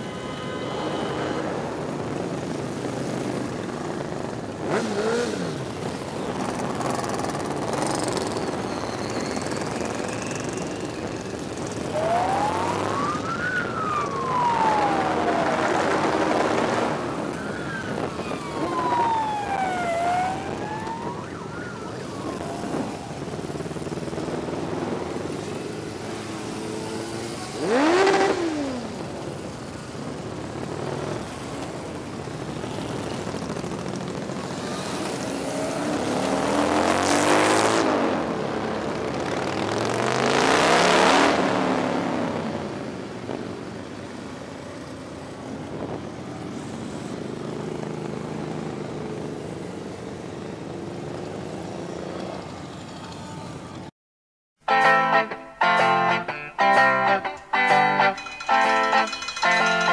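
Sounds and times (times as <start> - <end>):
motorcycles riding past: 0.0 - 53.9
siren wailing: 8.6 - 23.4.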